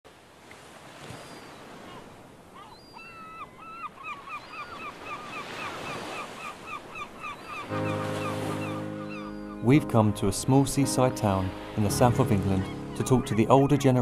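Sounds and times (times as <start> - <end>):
gull calling: 1.4 - 9.8, 11.3 - 14.0.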